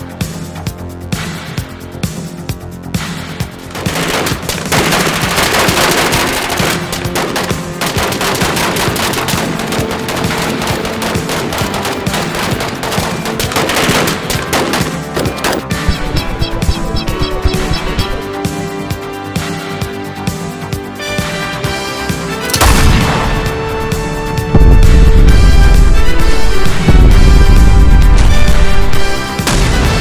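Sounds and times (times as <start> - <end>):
background music: 0.0 - 30.0
rapid automatic gunfire: 3.7 - 18.2.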